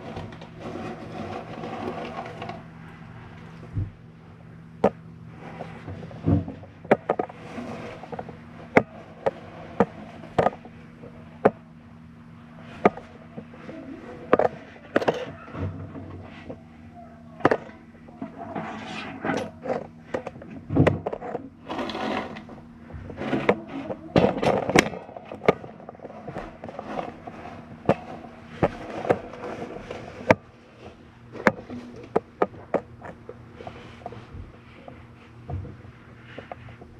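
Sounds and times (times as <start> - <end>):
low hum: 0.0 - 36.9
knocks and scrapes on metal: 17.3 - 32.9.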